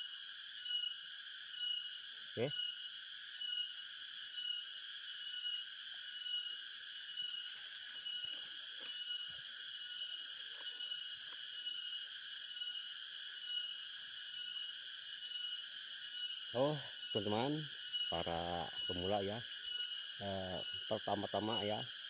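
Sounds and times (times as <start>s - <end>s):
forest insects buzzing: 0.0s - 22.0s.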